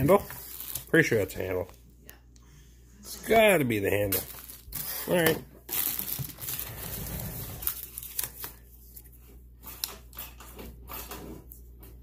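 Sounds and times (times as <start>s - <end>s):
plastic packaging crinkling: 0.0s - 1.5s, 4.1s - 8.7s.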